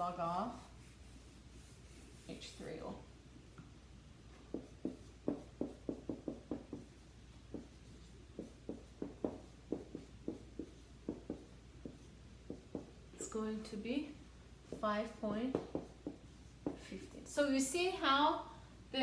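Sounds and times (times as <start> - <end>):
marker writing on a whiteboard: 0.0 - 2.9, 4.3 - 13.4, 14.6 - 17.2.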